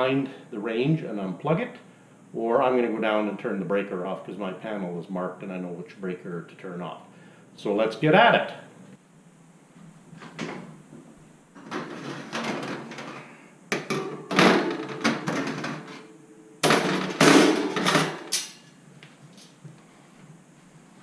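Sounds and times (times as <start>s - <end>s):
oven racks rattling and scraping: 11.6s - 18.3s.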